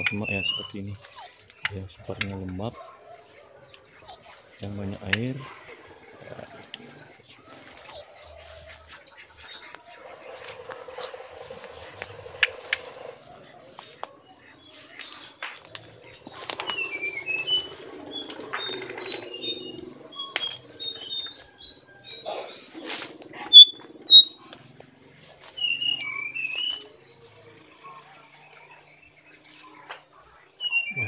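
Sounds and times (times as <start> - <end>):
loud sharp bird calls: 0.0 - 27.0, 28.8 - 31.0
birds chirping: 0.0 - 31.0
leaves and twigs rustling: 3.6 - 30.3.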